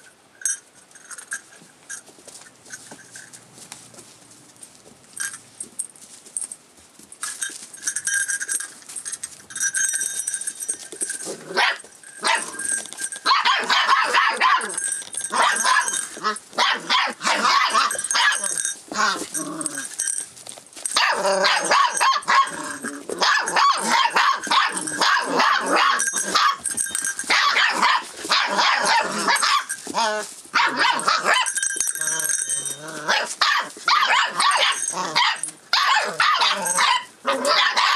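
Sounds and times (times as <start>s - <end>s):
puppies barking and yapping: 8.4s - 20.2s, 20.8s - 37.9s.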